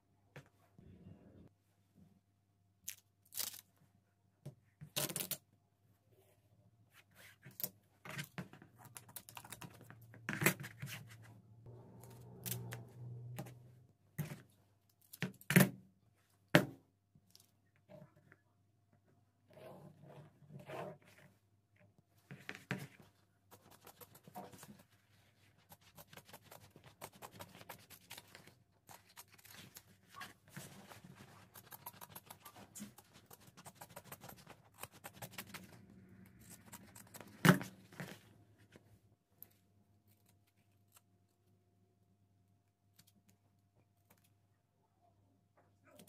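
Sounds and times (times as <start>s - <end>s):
scissors cutting leather: 25.7s - 29.9s, 31.3s - 35.7s
pen scratching on paper: 30.5s - 35.7s.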